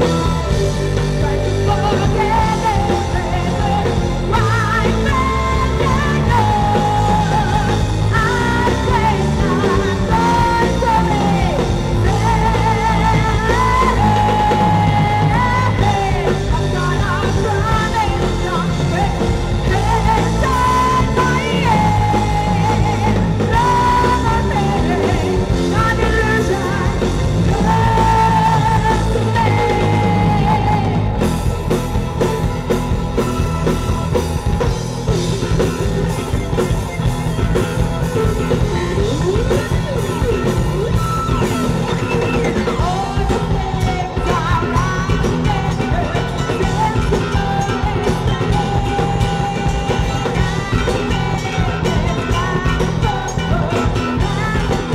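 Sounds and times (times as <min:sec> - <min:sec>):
person singing long notes: 0:00.0 - 0:31.6
bass guitar: 0:00.0 - 0:54.9
drums: 0:00.0 - 0:54.9
electric guitar: 0:00.0 - 0:54.9
keyboards: 0:00.0 - 0:54.9.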